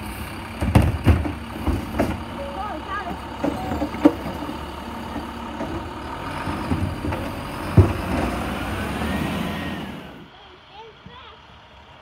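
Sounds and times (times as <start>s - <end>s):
hydraulic arm dumping cart: 0.0s - 10.3s
garbage truck engine running: 0.0s - 12.0s
metal clunks: 0.5s - 8.4s.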